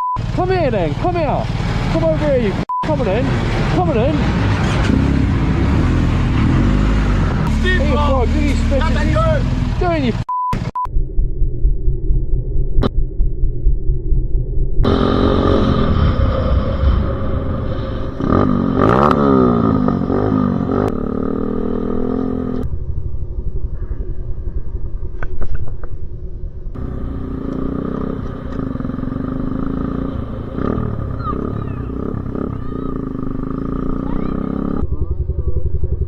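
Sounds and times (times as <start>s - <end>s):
dirt bike engine revving: 0.2s - 10.2s, 14.8s - 22.7s, 26.8s - 36.0s.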